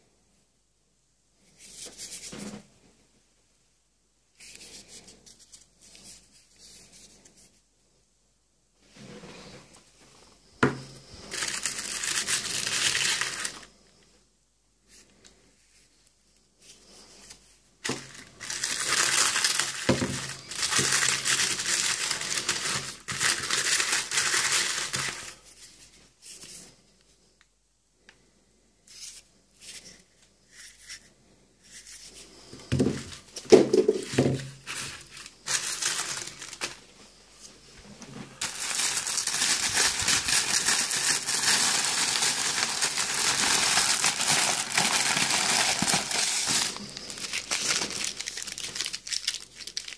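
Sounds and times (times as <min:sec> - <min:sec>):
paper crumpling and tearing: 0:11.2 - 0:13.7, 0:17.8 - 0:25.7, 0:33.0 - 0:36.8, 0:38.4 - 0:49.9.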